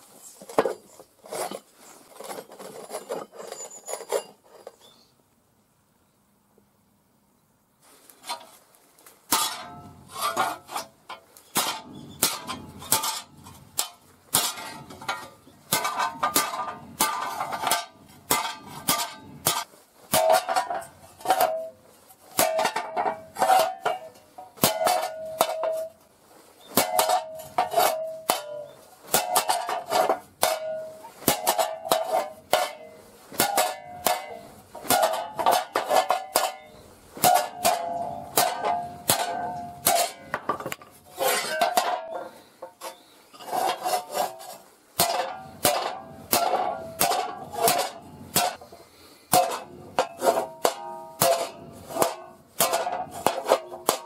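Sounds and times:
hammer clanging on steel plate: 9.3 - 26.0, 26.7 - 43.0, 45.0 - 48.7, 49.3 - 54.0.

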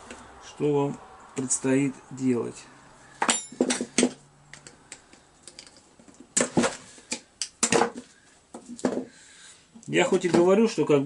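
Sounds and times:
metal hand tools clattering: 3.2 - 4.1.

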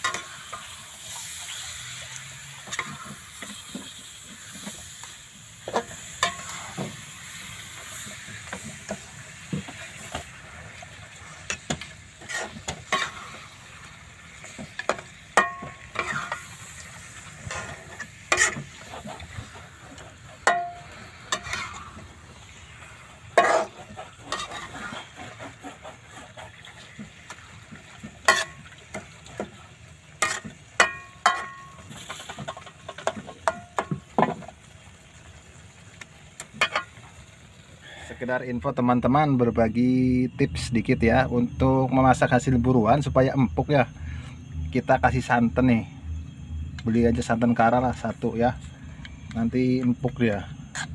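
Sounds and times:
metal spatula scraping a wok: 0.0 - 29.4, 30.2 - 33.9
frying hiss: 0.0 - 50.9.

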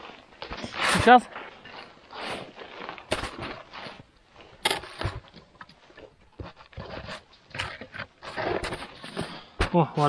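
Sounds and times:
sharp knocks and scrapes: 4.6 - 10.0.

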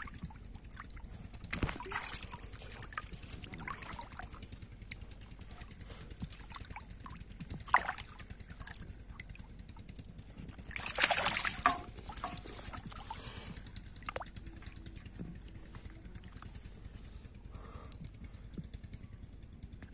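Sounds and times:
water splashing from thrashing fish: 0.0 - 15.6.

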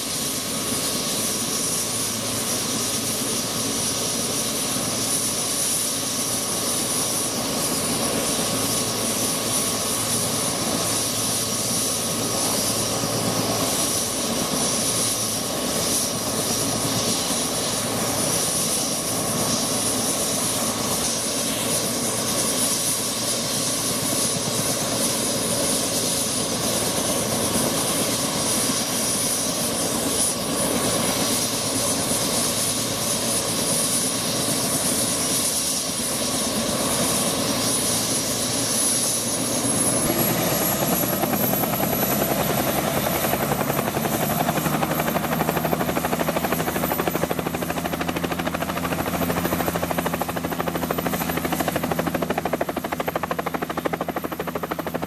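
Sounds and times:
helicopter engine and rotor: 0.0 - 55.0
high-pitched turbine whine: 0.0 - 55.0.

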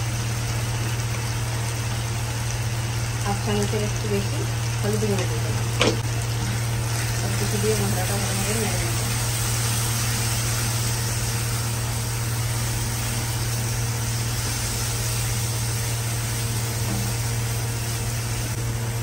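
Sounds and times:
kitchen motor humming: 0.0 - 19.0
masala frying and stirred: 0.1 - 19.0.

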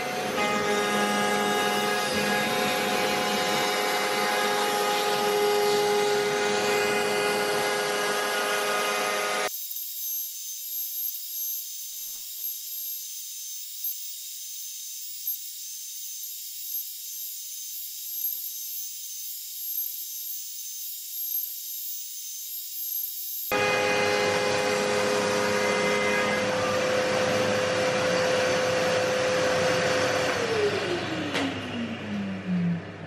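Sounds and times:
cnc router spindle whining: 0.0 - 33.0
thin hiss with high whine: 9.4 - 23.5.

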